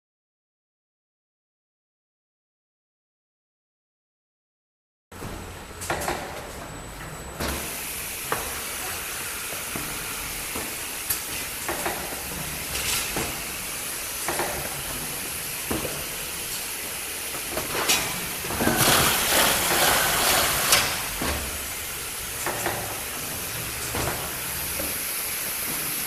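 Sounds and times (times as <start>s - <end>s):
packing machine hissing: 7.5s - 26.0s.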